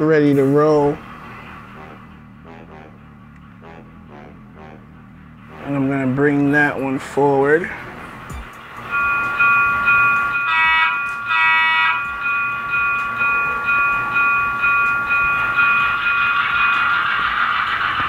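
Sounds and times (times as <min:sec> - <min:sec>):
diesel engine revving: 0:00.0 - 0:18.0
short horn blasts: 0:01.7 - 0:06.2, 0:10.4 - 0:12.1
locomotive bell ringing: 0:05.4 - 0:18.0.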